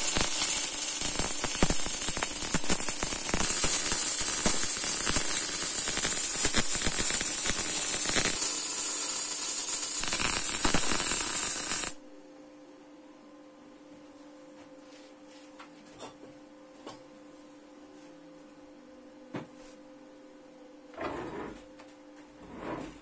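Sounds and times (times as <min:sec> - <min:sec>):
arc welding crackling sizzle: 0:00.0 - 0:12.0
faint steady hum: 0:00.0 - 0:23.0.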